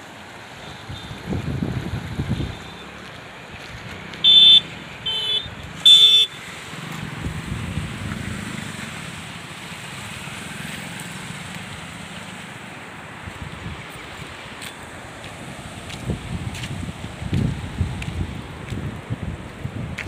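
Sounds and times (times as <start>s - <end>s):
moving vehicle rumble: 0.0s - 20.0s
wind: 0.0s - 20.0s
vehicle horn honking: 4.2s - 6.4s.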